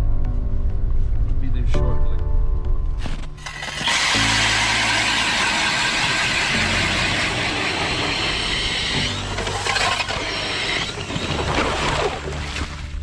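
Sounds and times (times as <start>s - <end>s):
drill motor whine: 3.4s - 12.1s
auger blades grinding ice: 3.4s - 13.0s.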